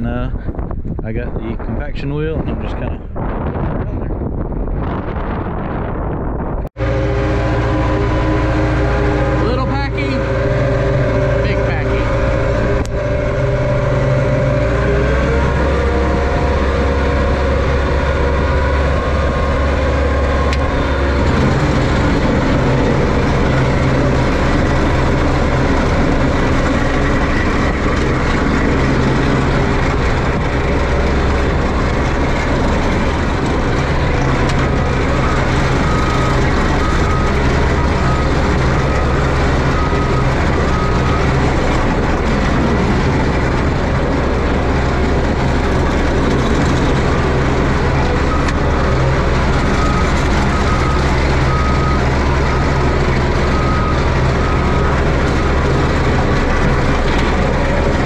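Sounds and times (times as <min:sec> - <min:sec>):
excavator diesel engine running: 0:04.7 - 0:58.0
backup alarm beeping: 0:06.8 - 0:32.0, 0:32.6 - 0:43.4, 0:46.6 - 0:57.0.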